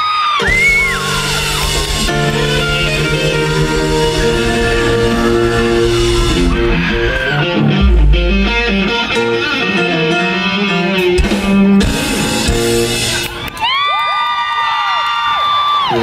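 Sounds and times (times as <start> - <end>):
rock band playing: 0.4 - 13.7
drum hits: 0.6 - 9.2.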